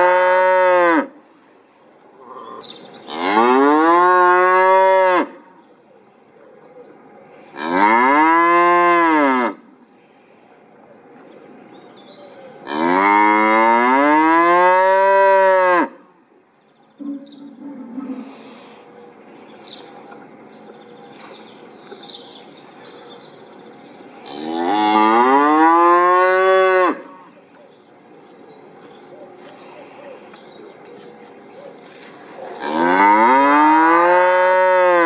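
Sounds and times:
cow mooing: 3.1 - 5.4, 7.6 - 9.6, 24.2 - 27.3, 32.6 - 35.0.

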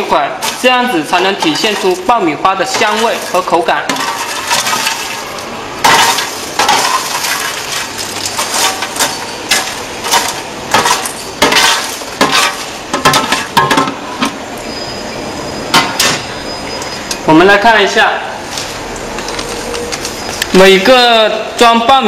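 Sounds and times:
popcorn rustling: 0.0 - 13.6
plastic scoop scraping on steel: 5.9 - 13.5.

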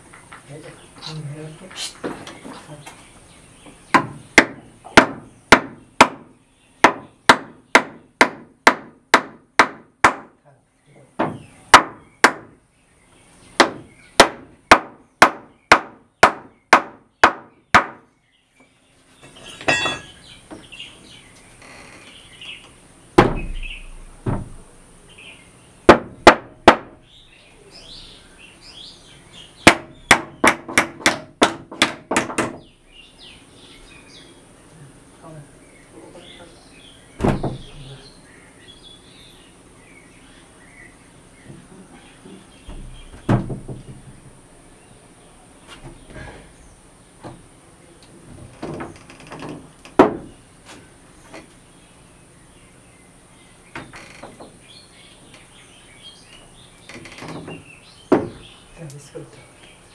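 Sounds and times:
dull thuds: 23.2 - 24.6, 37.2 - 37.9, 41.4 - 44.4, 48.2 - 50.4, 57.0 - 58.5.

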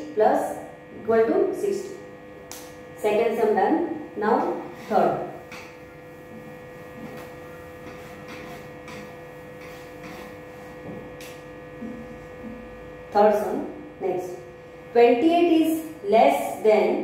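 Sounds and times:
electrical hum: 0.0 - 17.0
cloth wiping whiteboard: 6.0 - 11.1.

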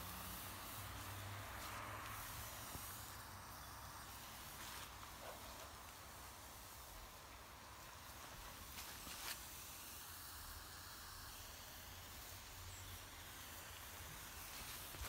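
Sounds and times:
smoke bomb hissing: 0.0 - 15.0.

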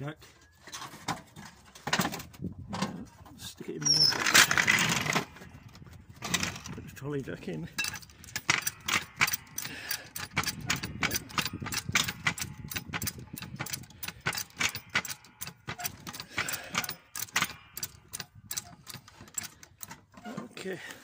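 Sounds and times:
trolley jack clicking: 3.8 - 6.8, 7.8 - 20.6.

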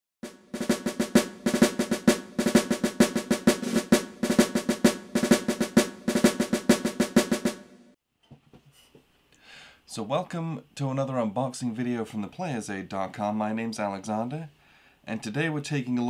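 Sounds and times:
snare drum rolls and beats: 0.2 - 8.0.

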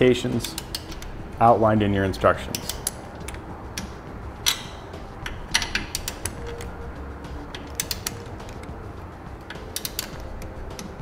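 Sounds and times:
torque wrench clicking: 0.4 - 1.1, 2.5 - 6.7, 7.5 - 8.7, 9.4 - 10.9.

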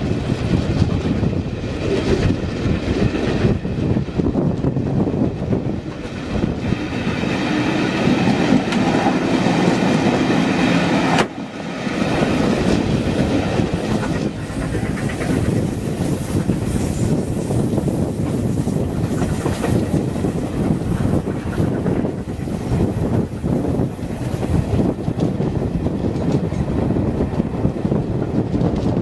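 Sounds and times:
steam train running noise: 0.0 - 29.0.

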